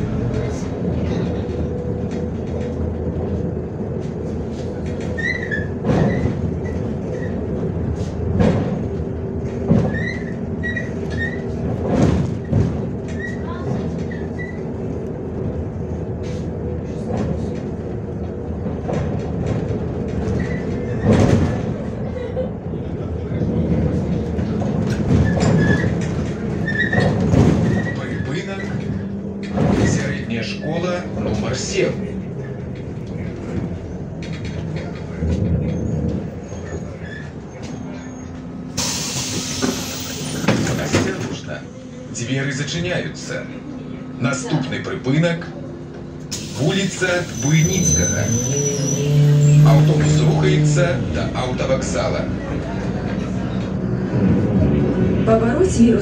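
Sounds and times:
bus diesel engine running: 0:00.0 - 0:56.0
short squeaks: 0:05.0 - 0:07.4, 0:09.8 - 0:11.6, 0:25.2 - 0:29.1, 0:47.3 - 0:50.1
loud hiss of compressed air: 0:38.8 - 0:40.4.

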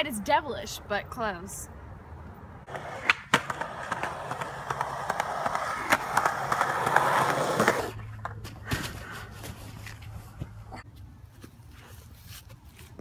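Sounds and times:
skateboard wheels rolling on concrete: 0:02.2 - 0:10.8.

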